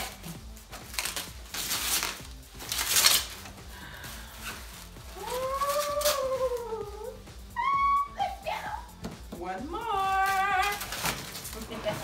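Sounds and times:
plastic wrapping crinkling: 0.0 - 7.2, 9.9 - 12.0.

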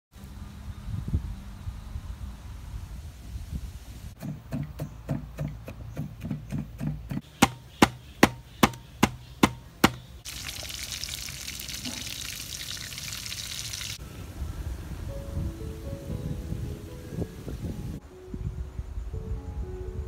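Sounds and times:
cleaver chopping on wooden board: 4.2 - 10.1
food sizzling in hot oil: 10.3 - 14.0.

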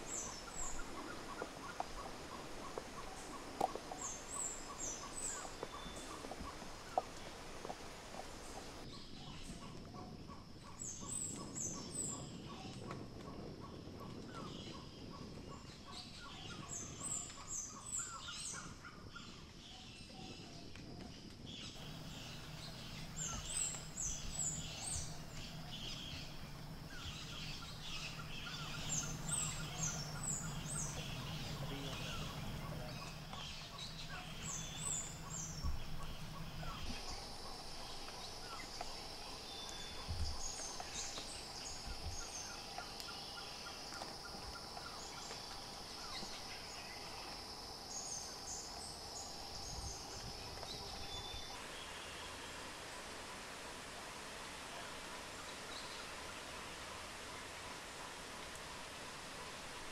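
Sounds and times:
birds calling: 0.0 - 8.9, 21.8 - 52.0.

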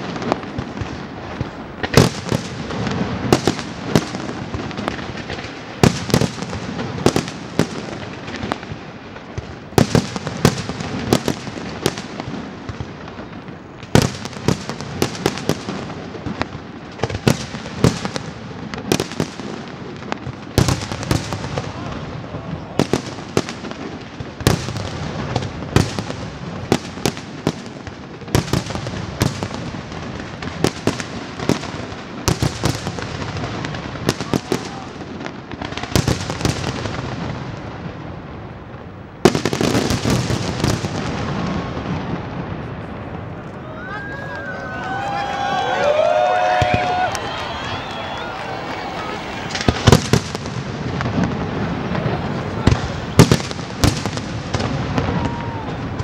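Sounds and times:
crackle and rumble of fireworks: 0.0 - 56.0
firework shells bursting: 46.6 - 56.0.

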